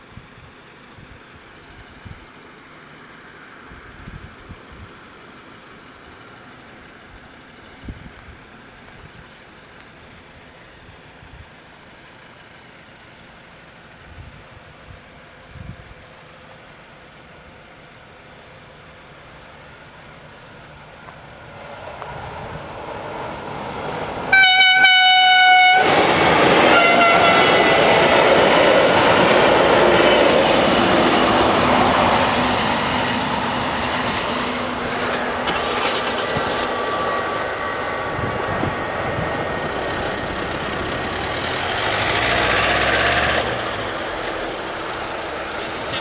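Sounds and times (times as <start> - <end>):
train rumbling over rails: 0.0 - 46.0
train horn: 24.3 - 27.9.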